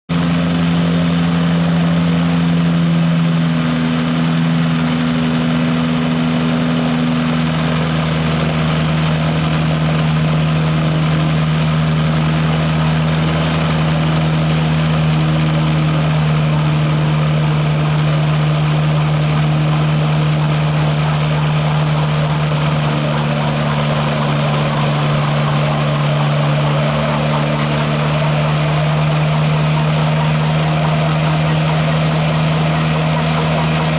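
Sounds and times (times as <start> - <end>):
aircraft engine running: 0.1 - 33.9
propeller turning: 0.1 - 33.9
rotor spinning up: 3.6 - 33.9.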